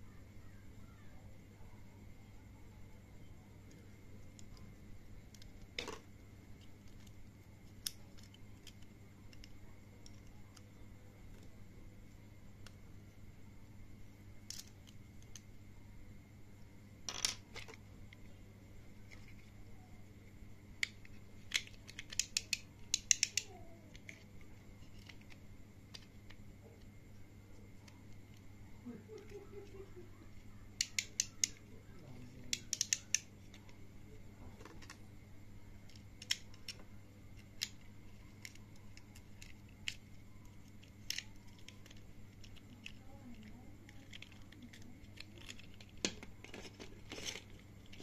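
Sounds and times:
faint steady hum: 0.0 - 48.0
plastic toy clicks and snaps: 20.8 - 24.2, 30.8 - 31.6, 32.4 - 33.6, 35.9 - 36.8, 37.4 - 40.1, 40.7 - 48.0
toy spinning top clicks: 20.8 - 24.2, 32.4 - 33.3.

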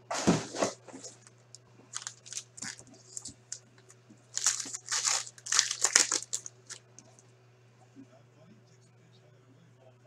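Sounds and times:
foil wrappers crinkling and tearing: 1.9 - 6.8.

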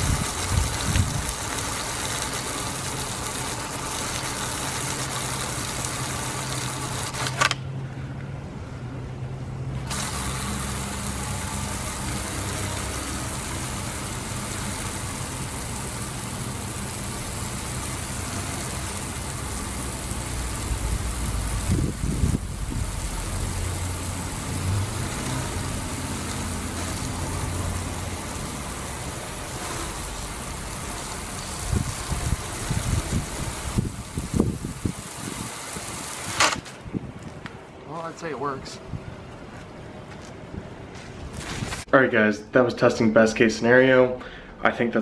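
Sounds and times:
water jet hissing: 0.0 - 7.4, 9.8 - 36.6
low hum of spinning wheel: 0.0 - 7.6, 9.7 - 36.6.

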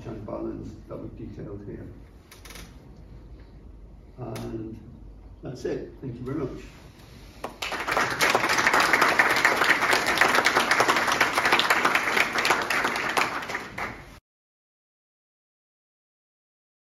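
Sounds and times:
audience applauding: 7.4 - 14.2.

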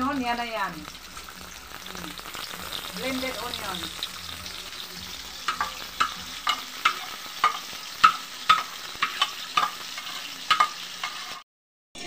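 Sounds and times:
oil sizzling: 0.0 - 11.4
metal spatula scraping a bowl: 4.0 - 11.4.

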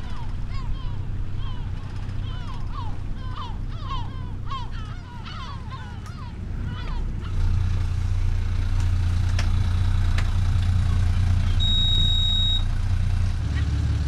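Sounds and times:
motor boat engine drone: 0.0 - 14.0
short high beep: 11.6 - 12.7.

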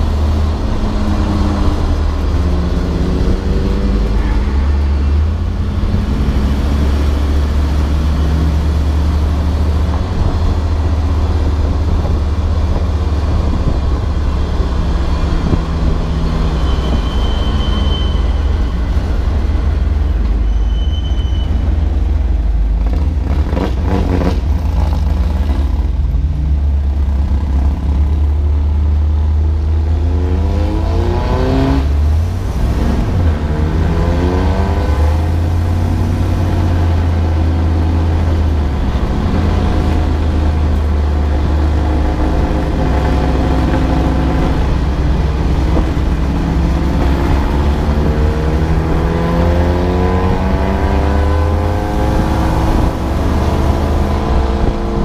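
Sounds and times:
road and wind noise: 0.0 - 55.0
race car engine revving: 29.8 - 55.0.

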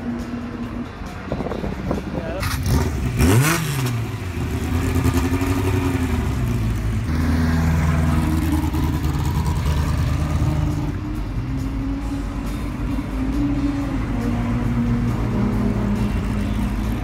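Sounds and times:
race car engine at low revs: 1.3 - 12.8.

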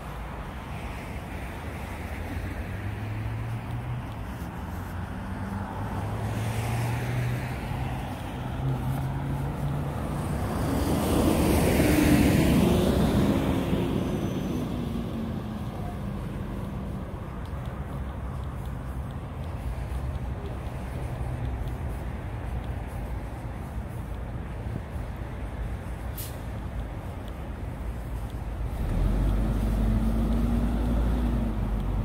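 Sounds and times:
traffic engines humming: 0.0 - 32.0
vehicle passing close: 2.6 - 17.3, 28.7 - 32.0.

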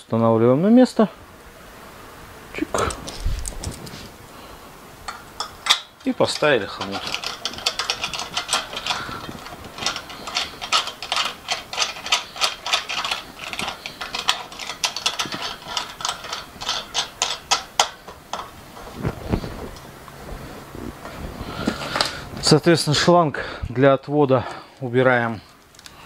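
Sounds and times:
metallic clicks and rattles: 5.1 - 19.0.

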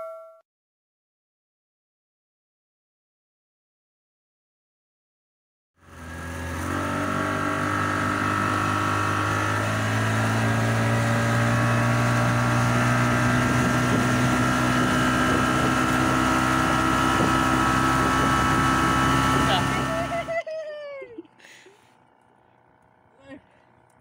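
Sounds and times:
motorboat engine running: 5.8 - 24.0.

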